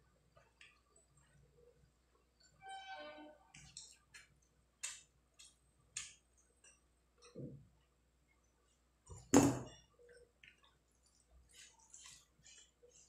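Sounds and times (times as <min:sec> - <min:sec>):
wet sounds of rice mixed by hand: 0:09.9 - 0:13.0.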